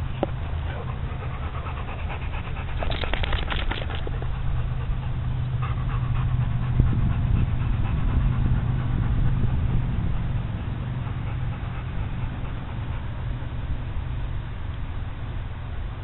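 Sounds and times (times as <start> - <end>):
dog panting: 0.0 - 14.1
steady low rumble: 0.0 - 16.0.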